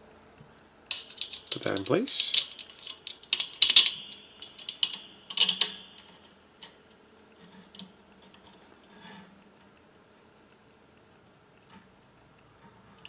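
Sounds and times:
metal bolt clicking in clamp: 0.9 - 6.4.

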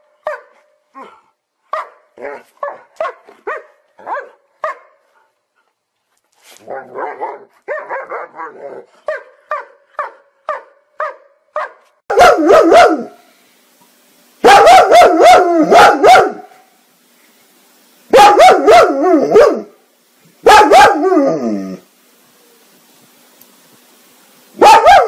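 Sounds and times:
dog barking: 0.2 - 1.1, 1.7 - 5.0, 6.8 - 13.2, 14.4 - 16.5, 18.1 - 19.7, 20.4 - 21.3, 24.6 - 25.0.

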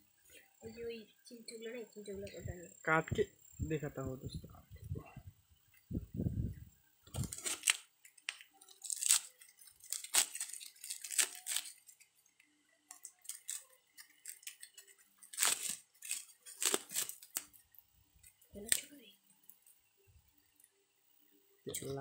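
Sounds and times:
plastic wrapping tearing and crinkling: 7.1 - 12.2, 12.9 - 17.6, 18.2 - 18.9.

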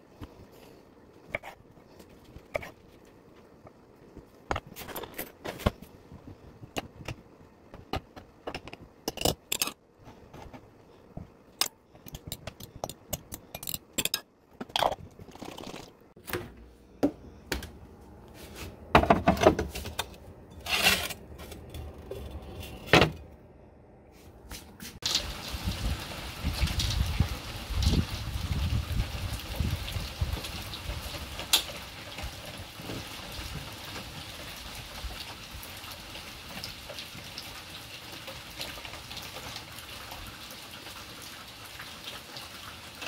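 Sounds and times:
knife scraping on board: 20.6 - 21.7.

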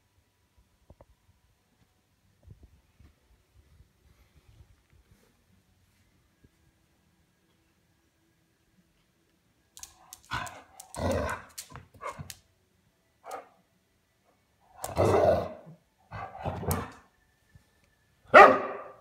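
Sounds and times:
wolf pup barking: 10.2 - 12.4, 13.2 - 13.6, 14.8 - 17.0, 18.3 - 19.0.

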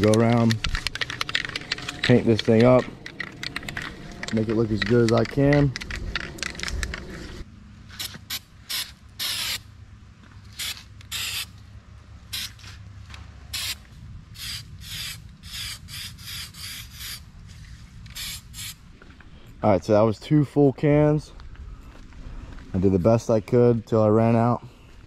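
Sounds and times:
aerosol spray can hissing: 14.4 - 17.2, 18.1 - 18.8.

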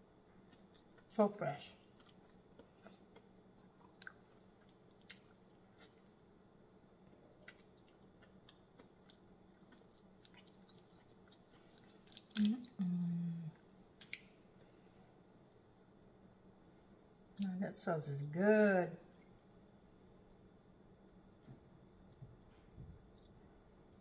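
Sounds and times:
quiet chewing: 0.1 - 1.1, 1.8 - 6.2, 7.0 - 15.7, 20.2 - 24.0
person humming mm: 12.4 - 13.6.

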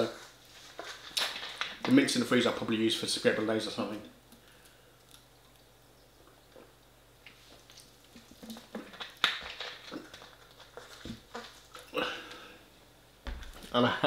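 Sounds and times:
plastic bottle crinkling: 0.1 - 2.2, 7.3 - 12.0.

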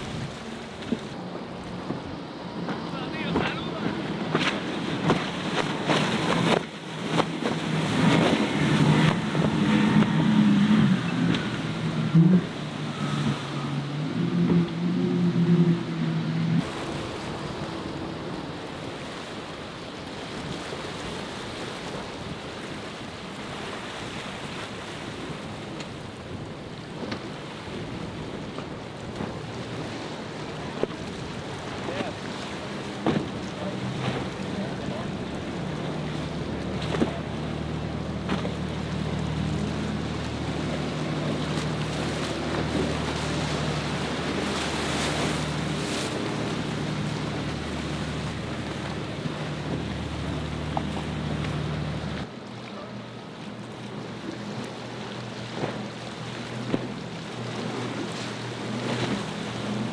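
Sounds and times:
wind on microphone: 0.0 - 23.3
outboard engines droning: 0.0 - 59.9
surf and spray washing: 0.0 - 59.9.

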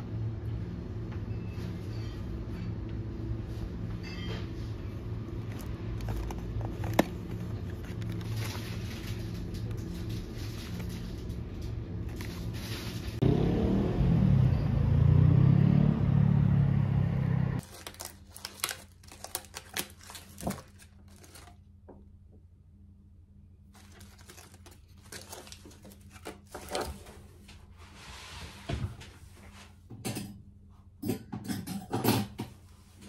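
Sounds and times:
foil wrapper crinkling: 5.4 - 13.2, 17.6 - 21.6, 23.8 - 27.1
loud low droning: 13.2 - 17.6.

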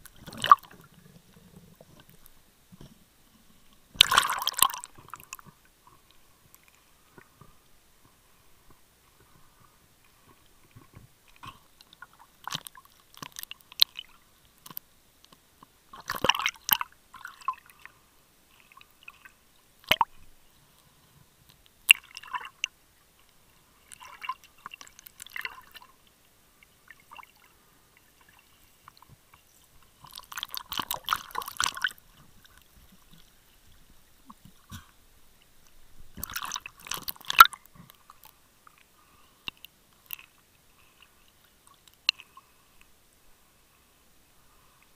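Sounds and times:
water sloshing: 0.0 - 14.2, 26.9 - 34.9, 35.5 - 38.3
muffled underwater crackling: 0.0 - 44.9.

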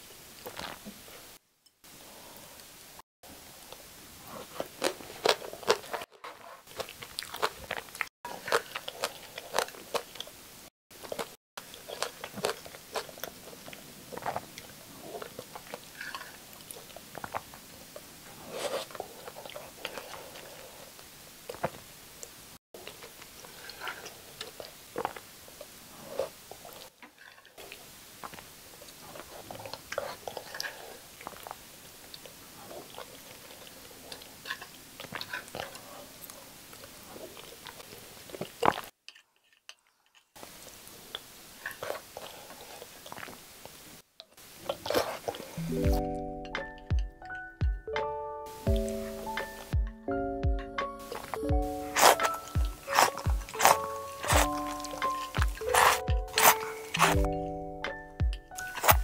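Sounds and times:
wet chewing and biting: 4.4 - 10.4, 11.0 - 17.6, 37.2 - 40.3, 50.8 - 59.0.

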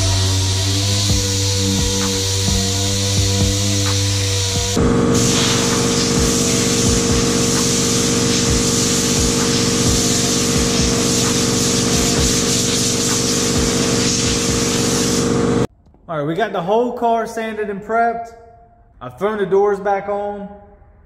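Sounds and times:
machine hum: 0.0 - 15.7.

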